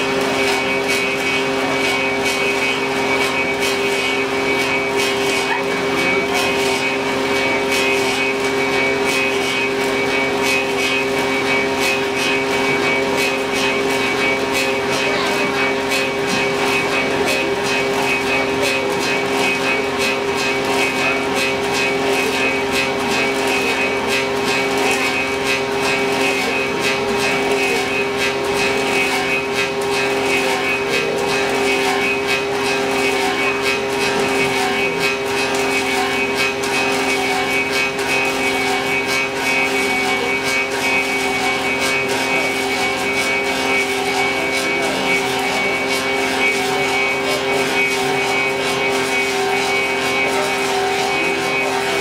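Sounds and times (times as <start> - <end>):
cutters rasping wood: 0.0 - 52.0
lathe motor humming: 0.0 - 52.0.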